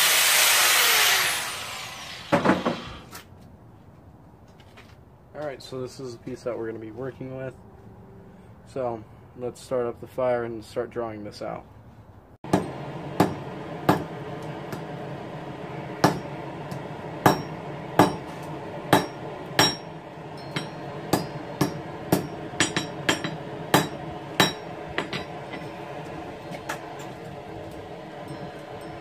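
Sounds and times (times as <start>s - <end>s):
hammer striking steel on anvil: 12.5s - 15.0s, 15.9s - 25.9s, 26.6s - 29.0s.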